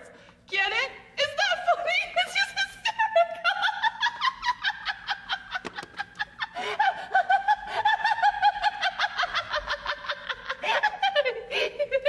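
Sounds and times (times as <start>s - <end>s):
woman laughing hard: 3.0s - 12.0s.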